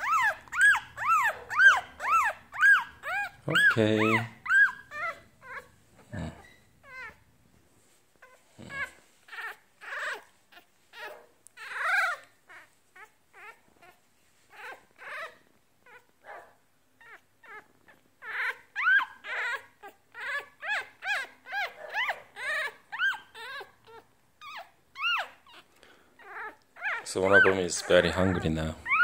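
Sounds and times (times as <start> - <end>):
puppy whimpering: 0.0 - 7.3, 8.1 - 16.3, 17.0 - 29.0.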